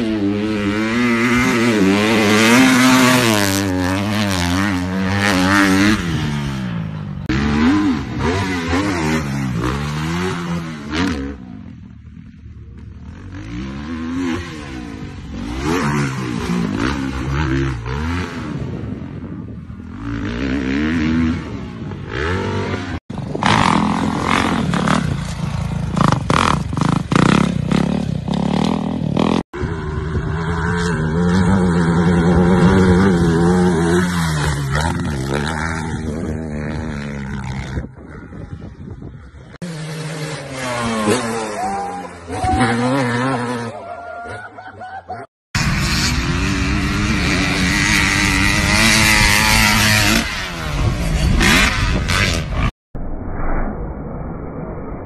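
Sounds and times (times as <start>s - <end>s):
dirt bike engines revving: 0.0s - 52.7s.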